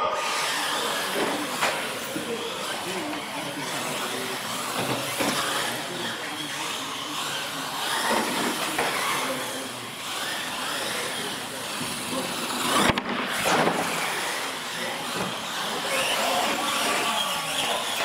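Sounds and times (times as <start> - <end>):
electric motors whining: 0.0 - 18.0
toy trucks landing knocks: 12.6 - 14.3.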